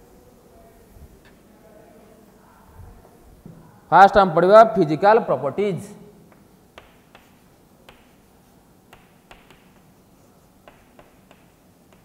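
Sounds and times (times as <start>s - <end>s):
chalk tapping on chalkboard: 6.3s - 12.0s.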